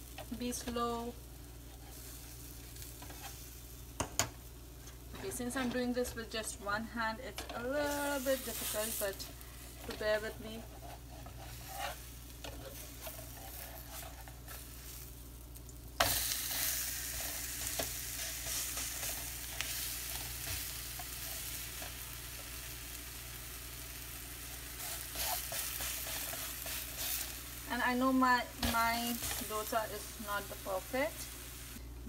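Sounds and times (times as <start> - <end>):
batter sizzling on hot pan: 0.0 - 31.8
metal spatula scraping griddle: 9.8 - 14.7.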